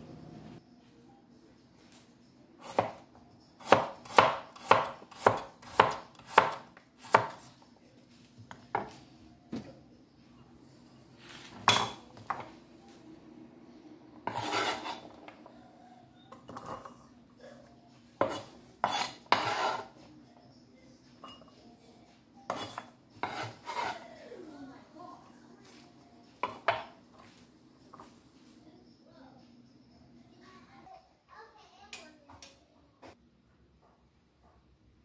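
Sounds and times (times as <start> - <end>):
knife chopping on wooden board: 2.6 - 3.0, 3.6 - 7.5, 18.2 - 19.9, 22.5 - 23.9
knife scraping on board: 14.2 - 15.2, 18.2 - 20.0, 22.5 - 24.0.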